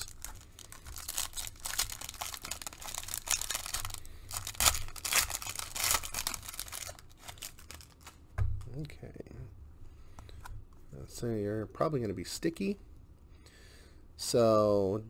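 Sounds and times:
foil ripping: 0.0s - 8.2s
foil wrapper crinkling: 0.0s - 8.2s.

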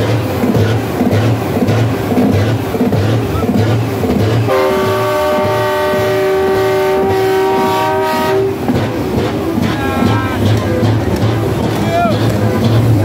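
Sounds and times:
truck air horn chord: 4.5s - 8.6s
thumping music beat: 8.4s - 13.0s.

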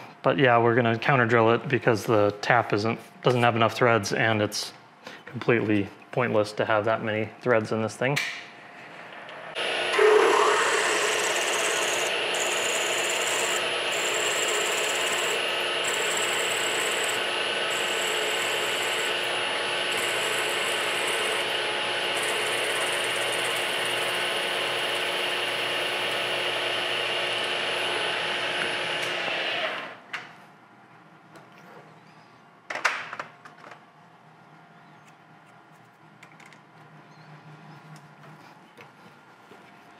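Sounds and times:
milling machine drilling metal: 9.6s - 29.9s.

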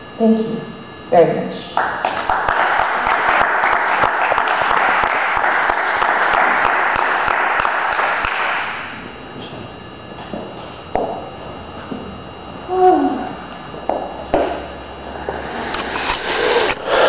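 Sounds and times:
audience applauding: 1.8s - 8.9s.

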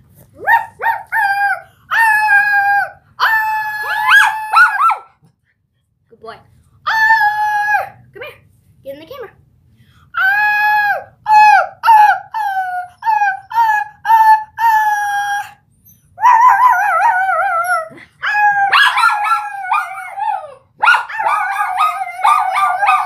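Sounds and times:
dog howling: 0.4s - 5.1s, 16.2s - 23.0s
girl howling: 16.2s - 23.0s.

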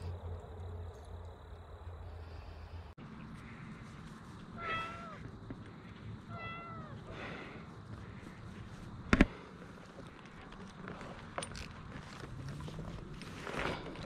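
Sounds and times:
cat meowing: 4.6s - 5.2s, 6.3s - 7.0s.

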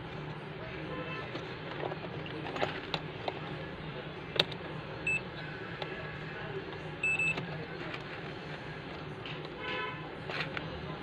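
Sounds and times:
multimeter continuity beeps: 5.0s - 5.3s, 7.0s - 7.4s.

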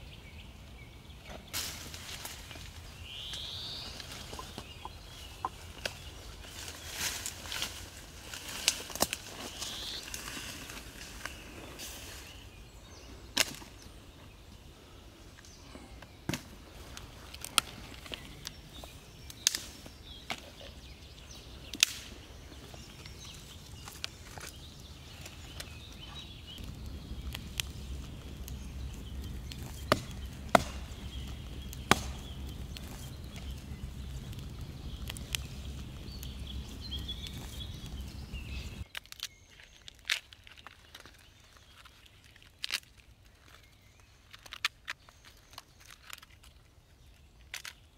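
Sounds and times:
leaves and branches rustling: 0.6s - 47.9s
sticks snapping: 5.4s - 11.4s, 13.3s - 13.8s, 16.3s - 20.8s, 21.6s - 25.8s, 26.6s - 43.6s, 47.4s - 47.9s.

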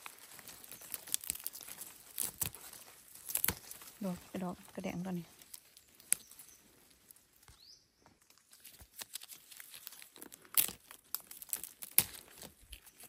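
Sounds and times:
dry leaves rustling and crackling: 0.0s - 13.0s
sharp crack: 10.2s - 12.5s.

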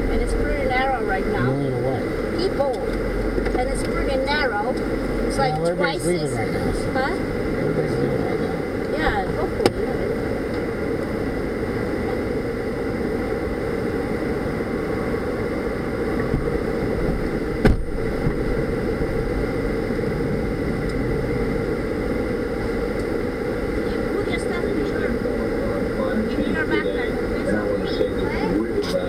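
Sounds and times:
minivan engine idling: 0.0s - 29.0s
sharp thump: 17.6s - 18.4s.

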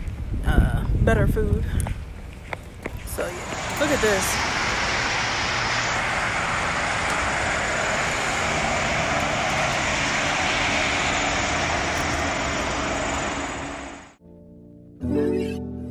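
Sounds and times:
highway traffic passing: 1.9s - 14.2s.

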